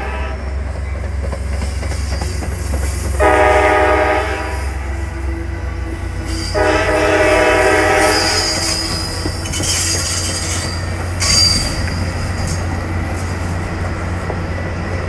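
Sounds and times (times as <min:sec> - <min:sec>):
train horn: 0:00.0 - 0:00.6, 0:03.2 - 0:09.2
passing train rumble: 0:00.0 - 0:15.0
wheel squeal: 0:08.0 - 0:12.6.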